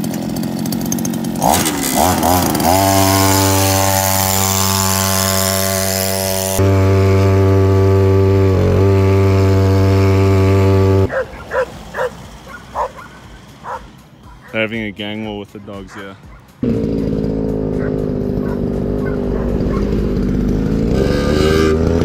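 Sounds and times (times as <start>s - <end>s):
scooter engine buzzing: 0.0s - 22.0s
dogs barking: 11.1s - 14.7s, 15.7s - 16.6s, 17.7s - 20.0s.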